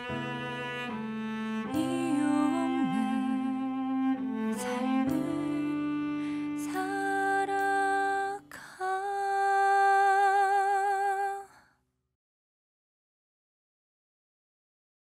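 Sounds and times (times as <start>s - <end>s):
woman singing long notes: 1.7s - 3.8s, 6.6s - 11.5s.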